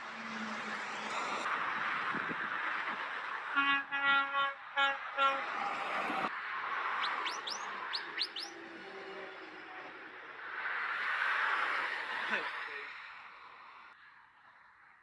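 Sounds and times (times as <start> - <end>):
motorway traffic and tyre noise: 0.0 - 15.0
truck horn short blasts: 3.6 - 5.5.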